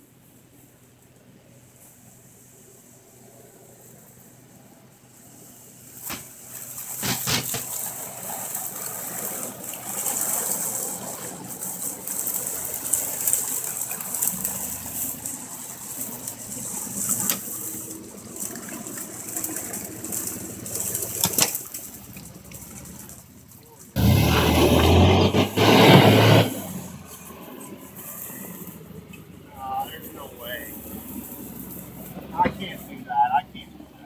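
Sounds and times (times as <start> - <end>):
jeep engine running: 0.0 - 34.0
sharp knocks: 7.0 - 7.7.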